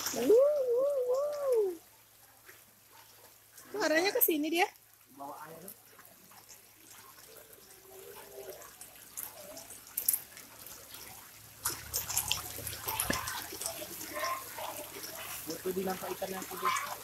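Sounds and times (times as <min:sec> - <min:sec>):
fish splashing and slurping at surface: 0:00.0 - 0:17.0.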